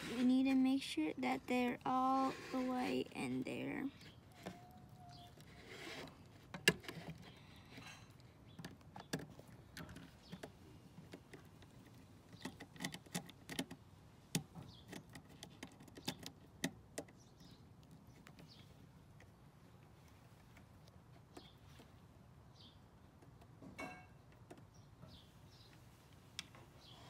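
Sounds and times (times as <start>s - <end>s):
wires being handled: 0.0s - 13.8s.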